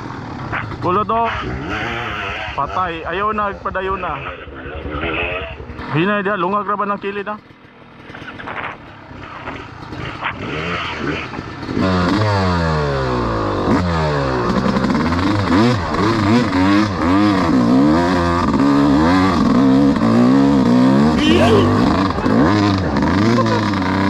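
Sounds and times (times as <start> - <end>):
dirt bike engine revving: 0.1 - 6.3, 7.5 - 24.0.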